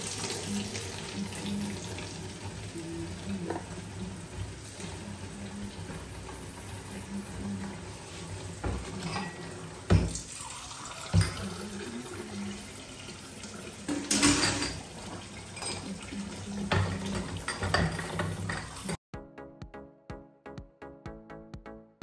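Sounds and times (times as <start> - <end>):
glasses clinking: 13.9 - 14.8.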